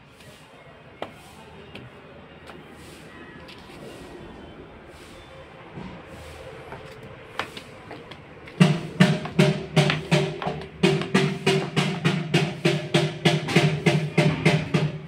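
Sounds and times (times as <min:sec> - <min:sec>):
music with fast drum beat: 0:08.6 - 0:15.0.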